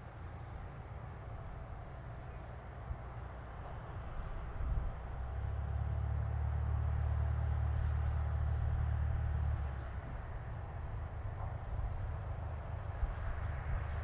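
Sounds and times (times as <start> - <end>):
light aircraft engine droning: 0.0 - 14.0.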